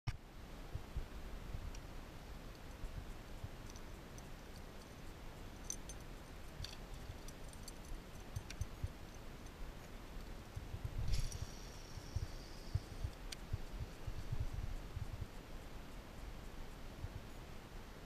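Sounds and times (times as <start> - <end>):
light clicks and ticks: 1.6 - 17.6
wind rumble on microphone: 5.6 - 18.0.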